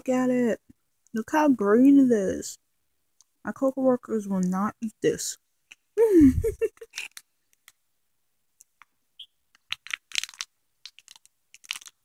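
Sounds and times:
foil snack wrapper crinkling: 6.8s - 7.8s, 9.5s - 12.0s.

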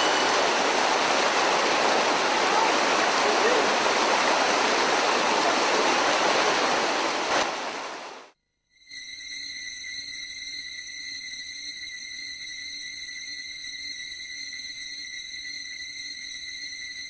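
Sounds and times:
steady rushing noise: 0.0s - 8.3s.

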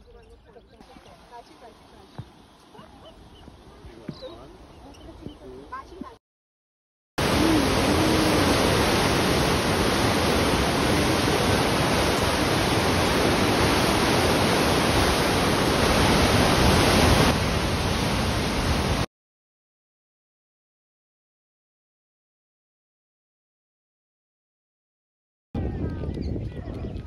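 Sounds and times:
white water rushing: 7.2s - 19.1s.

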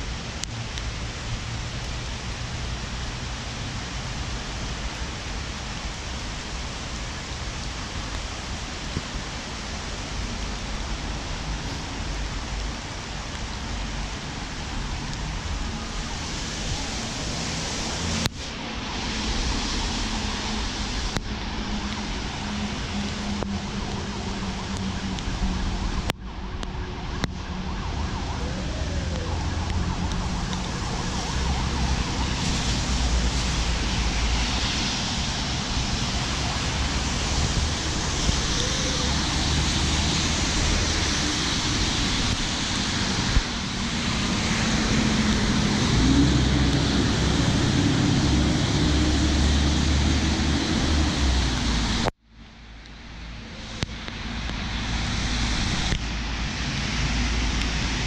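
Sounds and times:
tyre hiss on wet road: 0.0s - 26.1s, 27.4s - 52.1s, 53.0s - 58.0s
passing car engines: 15.0s - 52.1s.

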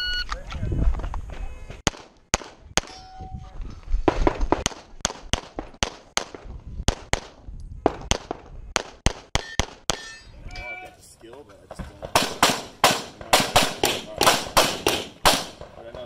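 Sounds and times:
pistol shots: 12.0s - 15.8s.

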